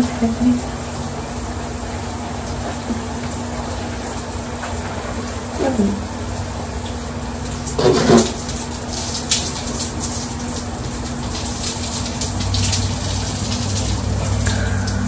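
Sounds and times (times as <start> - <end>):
shower water running and splashing: 0.0 - 15.0
faint low hum: 12.6 - 15.0.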